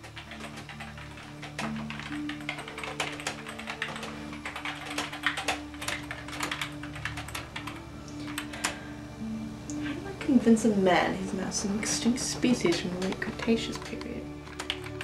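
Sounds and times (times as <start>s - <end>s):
typing on computer keyboard: 0.0s - 8.8s, 12.4s - 15.0s
faint background music: 0.0s - 15.0s.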